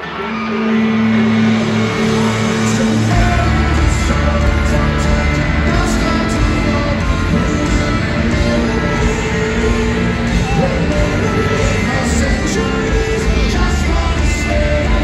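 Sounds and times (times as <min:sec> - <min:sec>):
live rock band with electric guitars: 0:00.0 - 0:15.0.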